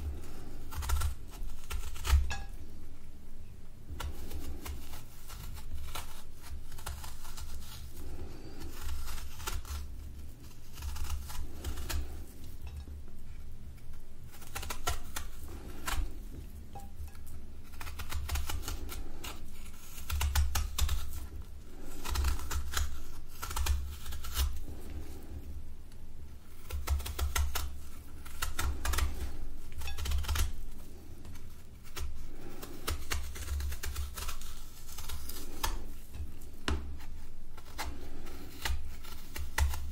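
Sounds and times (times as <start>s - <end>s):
knife peeling fruit skin: 0.0s - 2.9s, 3.8s - 39.9s
soft thuds of fruit handled: 36.2s - 37.1s.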